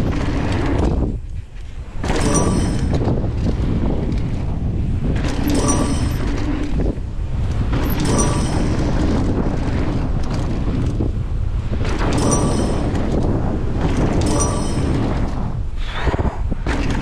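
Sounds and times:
bike tyres rumbling on dirt: 0.0 - 8.2, 8.8 - 12.3
wind buffeting microphone: 0.0 - 17.0.

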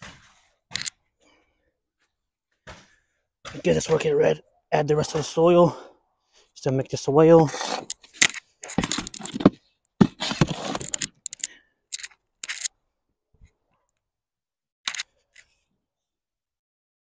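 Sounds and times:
shovel scraping soil: 7.4 - 11.5.

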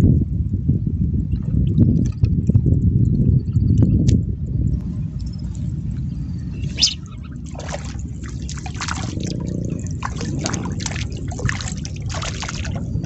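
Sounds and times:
water dripping: 4.8 - 13.0
fish splashing at water surface: 6.6 - 13.0.

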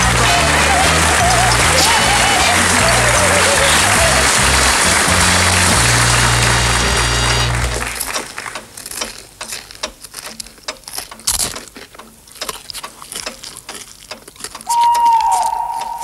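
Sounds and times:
chewing and crunching fried chicken: 6.5 - 16.0
high whistling tone: 14.7 - 16.0.

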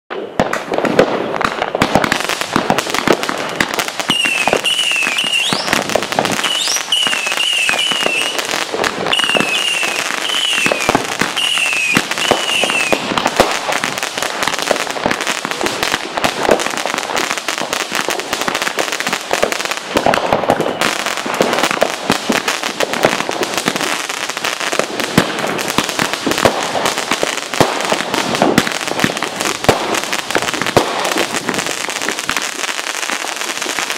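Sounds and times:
firecrackers crackling: 0.1 - 33.9
high warbling whistle: 4.1 - 5.8, 6.4 - 8.4, 9.1 - 13.0
rising whistles: 4.1 - 5.8, 6.4 - 8.4, 9.1 - 13.0.

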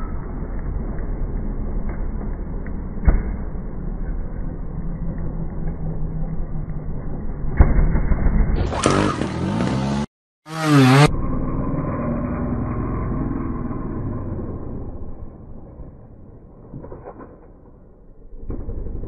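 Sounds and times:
engine revving: 7.6 - 15.4.

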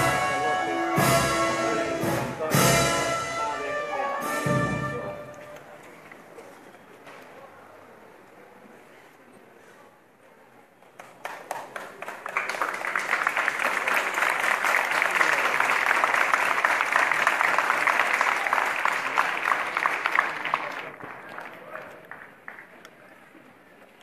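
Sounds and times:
crowd applauding: 10.9 - 23.4.

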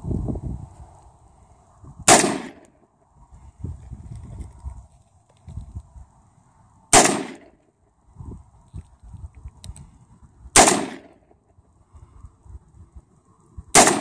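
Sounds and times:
rifle shots with echo: 2.1 - 2.7, 6.9 - 7.6, 10.6 - 11.2, 13.7 - 14.0.

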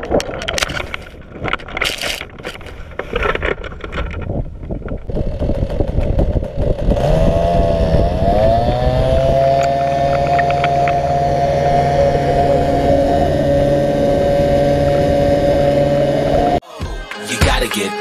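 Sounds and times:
small two-stroke engine running: 5.1 - 16.6.

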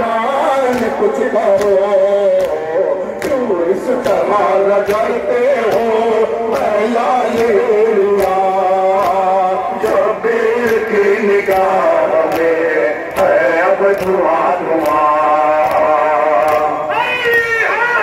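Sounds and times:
man chanting through loudspeakers: 0.0 - 18.0
chest beating slaps: 0.7 - 10.0, 10.6 - 14.2.

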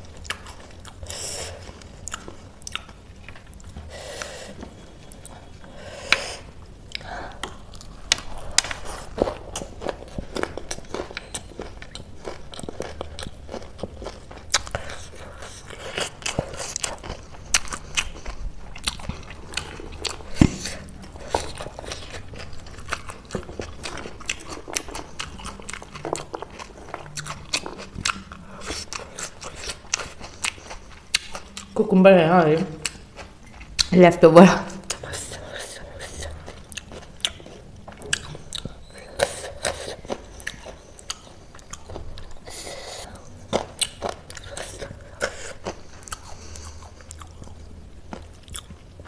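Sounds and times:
wet mouth chewing sounds: 0.0 - 31.8, 32.5 - 34.0, 34.7 - 49.0.

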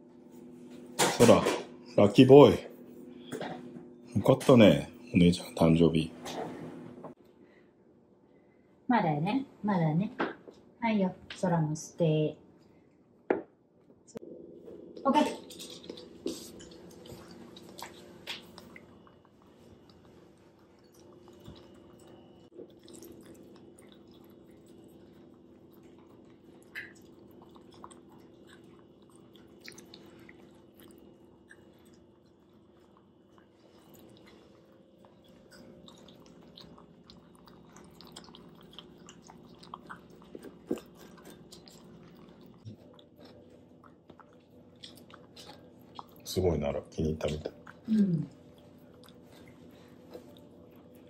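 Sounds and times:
steady low hum: 0.0 - 51.0
dogs chewing and smacking: 15.2 - 51.0.

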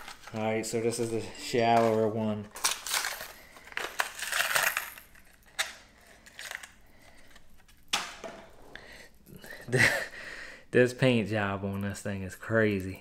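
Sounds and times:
plastic packaging crinkling: 0.0 - 7.8.

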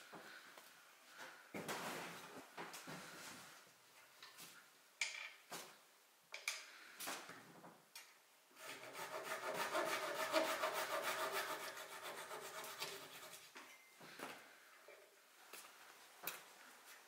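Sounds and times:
saw blade cutting wood: 8.6 - 13.4.

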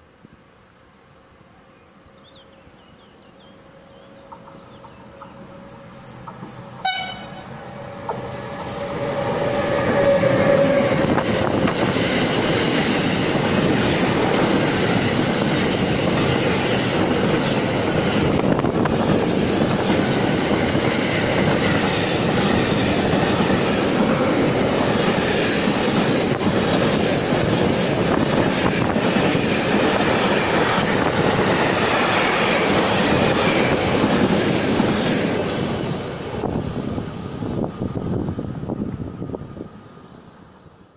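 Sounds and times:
train wheels rumbling on rails: 2.2 - 40.9.

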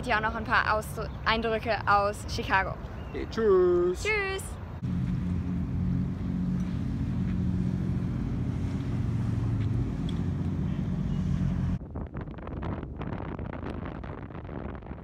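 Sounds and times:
wind buffeting microphone: 4.6 - 15.0
boat engine droning: 4.7 - 11.8.

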